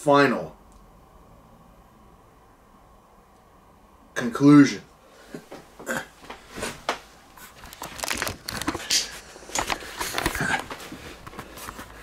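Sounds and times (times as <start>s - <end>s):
rustling and crinkling handling noise: 5.5s - 12.0s.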